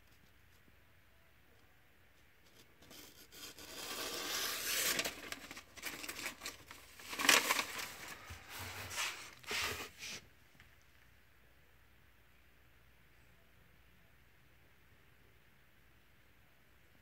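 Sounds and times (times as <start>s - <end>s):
paper hissing and crinkling: 2.8s - 10.2s
knife slicing through paper: 2.9s - 10.2s.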